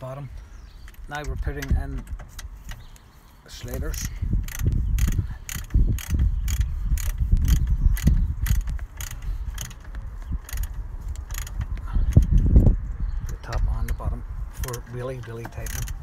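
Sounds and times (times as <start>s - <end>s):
socket ratchet clicking: 4.4s - 12.4s, 15.4s - 16.0s.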